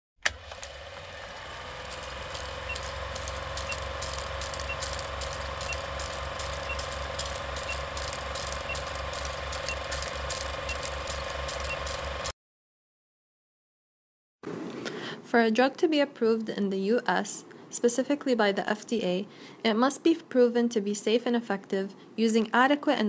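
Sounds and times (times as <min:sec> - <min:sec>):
film projector running: 0:00.2 - 0:12.3.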